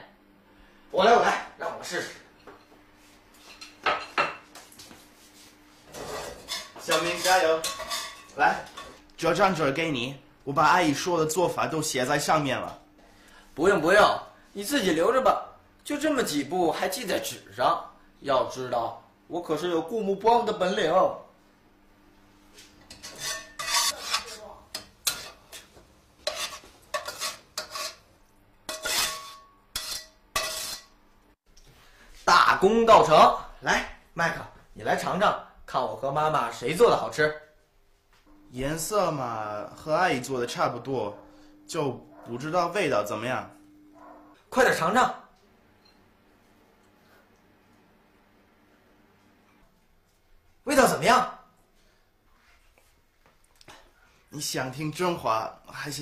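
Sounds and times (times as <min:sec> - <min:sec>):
kitchenware clinking: 0:03.4 - 0:04.5, 0:06.0 - 0:09.0, 0:22.8 - 0:28.0, 0:28.7 - 0:31.0
metal spatula scraping a wok: 0:05.9 - 0:08.3, 0:22.8 - 0:28.1, 0:28.7 - 0:31.0
person speaking: 0:23.9 - 0:24.7.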